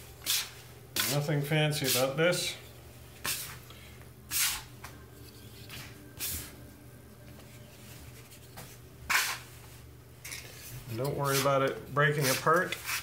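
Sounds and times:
faint low hum: 0.0 - 12.9
dough scraper scraping table: 4.3 - 6.5, 8.2 - 9.7, 10.3 - 13.0.

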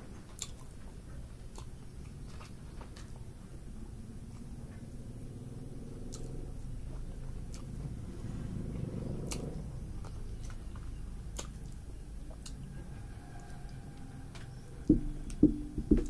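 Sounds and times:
wet mouth clicks eating: 0.3 - 3.2, 5.9 - 12.7
steady low rumble: 3.2 - 16.0.

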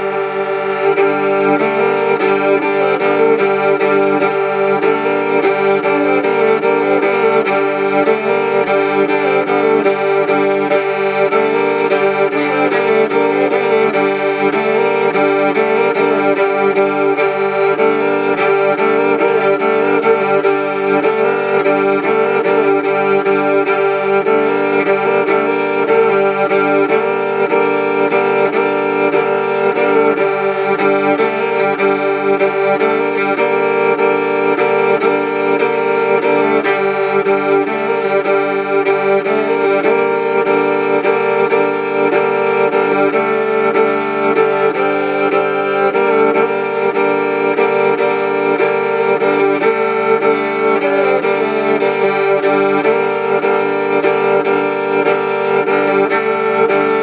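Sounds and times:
bowed lyre droning chord: 0.0 - 57.0.

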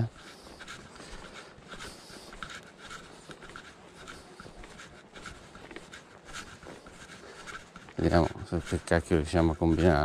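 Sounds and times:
footsteps on dry grass and soil: 0.0 - 10.0.

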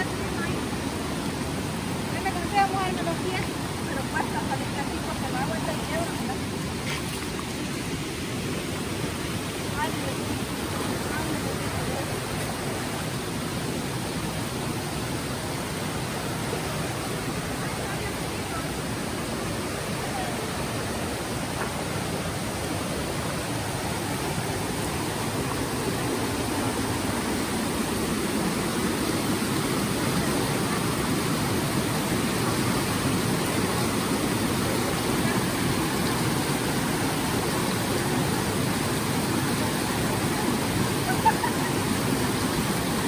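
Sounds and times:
river rushing over rocks: 0.0 - 43.0.

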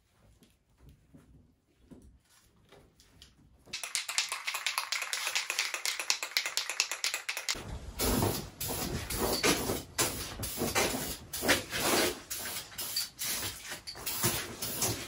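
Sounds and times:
spray can ball rattling: 3.8 - 7.6, 8.6 - 15.0.

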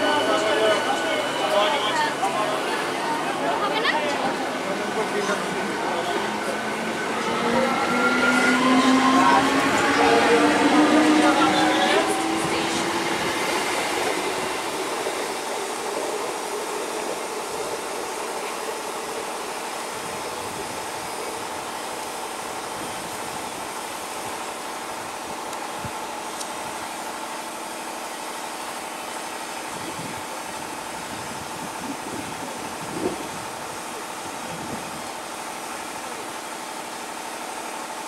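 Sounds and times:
train running gear rumble: 0.0 - 28.9.

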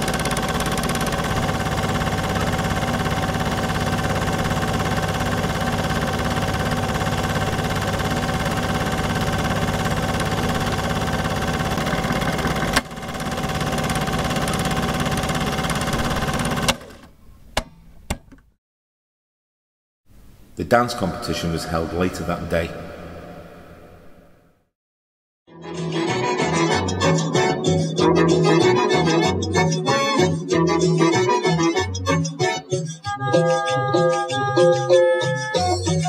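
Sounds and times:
projector whine: 0.0 - 17.0
film projector clattering: 0.0 - 17.1.

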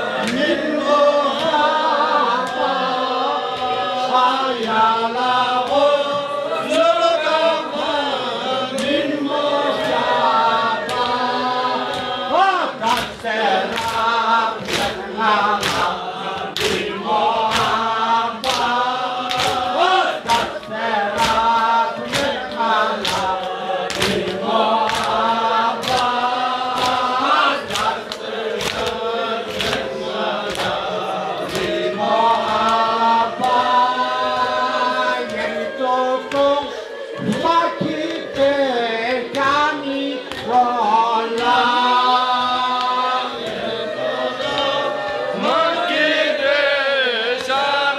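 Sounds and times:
men chanting in unison: 0.0 - 47.9
hands slapping chests: 9.7 - 12.2, 12.8 - 35.6, 40.2 - 40.7, 41.3 - 43.7.

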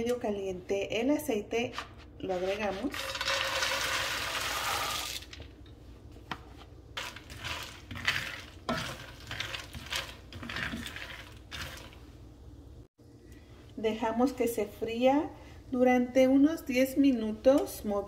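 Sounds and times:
wooden spoon stirring in pan: 1.7 - 3.8, 6.0 - 12.4
peanuts pouring into sizzling oil: 2.9 - 5.5, 7.0 - 12.1.

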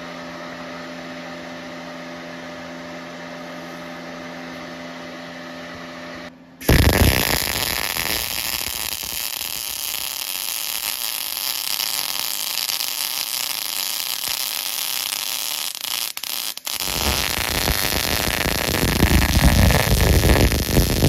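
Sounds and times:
welding arc crackling and hissing: 6.6 - 21.0.

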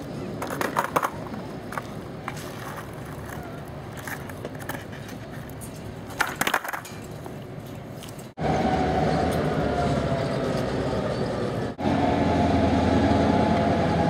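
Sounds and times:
diesel locomotive rumble: 8.3 - 14.0.

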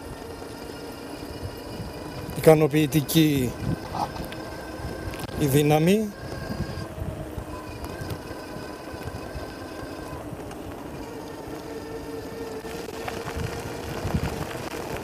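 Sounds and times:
bike rattling on gravel: 0.0 - 15.0
electric motor whining: 0.0 - 15.0
tyre noise: 0.0 - 15.0
wind on microphone: 1.2 - 11.1, 12.6 - 15.0.

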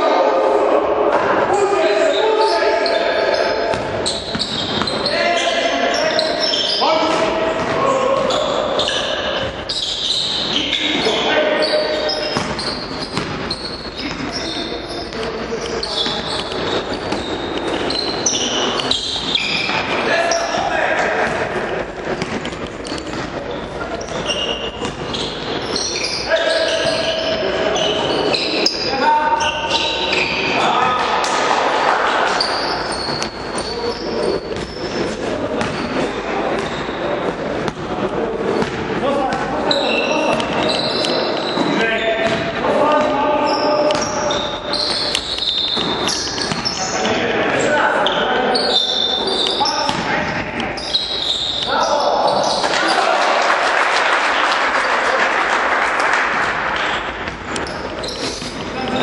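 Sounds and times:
players calling out: 0.0 - 59.0
sneakers squeaking on floor: 1.0 - 53.1, 56.4 - 59.0
basketball bouncing: 3.7 - 5.1, 7.0 - 9.7, 12.0 - 14.4, 21.2 - 23.4, 32.9 - 39.6, 40.2 - 43.2, 43.8 - 46.9, 49.4 - 50.7, 56.4 - 59.0
basketball bouncing on wooden floor: 12.2 - 14.3, 41.5 - 43.2, 43.9 - 46.8.

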